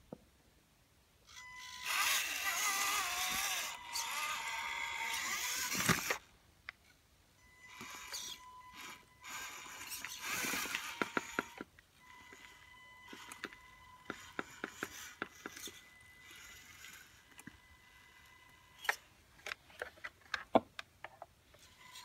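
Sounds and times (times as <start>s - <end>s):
toy car drivetrain whirring: 1.3s - 6.3s, 7.6s - 19.1s.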